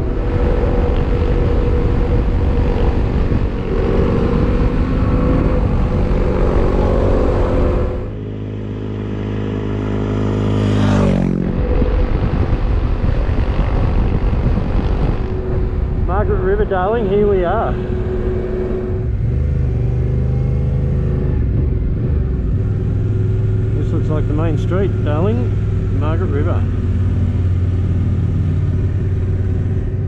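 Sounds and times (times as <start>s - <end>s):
wind noise on microphone: 0.0s - 8.2s, 11.2s - 20.5s
motorcycle engine: 0.0s - 30.0s.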